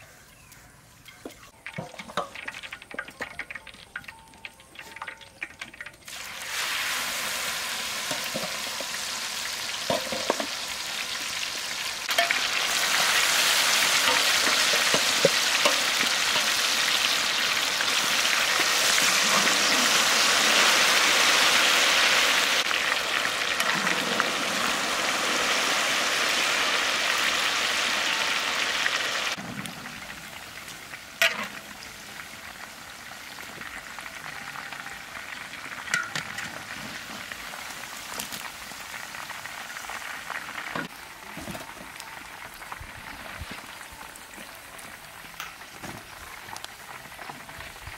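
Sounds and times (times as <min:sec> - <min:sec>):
chicken deep-frying in oil: 0:00.1 - 0:47.9.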